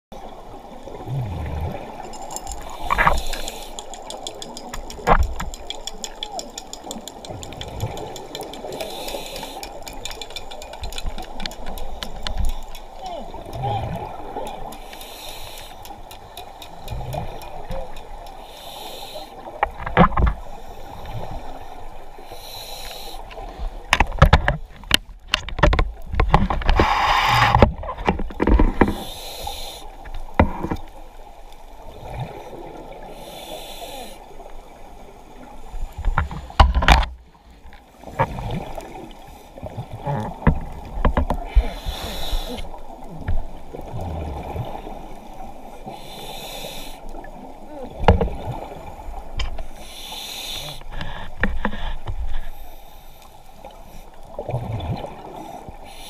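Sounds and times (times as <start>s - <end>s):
exhaled bubbles rumbling: 0.4s - 3.2s, 54.3s - 55.4s
regulator inhalation hiss: 2.6s - 3.9s, 8.8s - 9.8s, 14.8s - 16.0s, 18.4s - 19.5s, 22.2s - 23.4s, 28.9s - 30.0s, 33.1s - 34.3s, 41.6s - 42.8s, 45.8s - 47.2s, 49.7s - 50.9s, 55.8s - 56.0s.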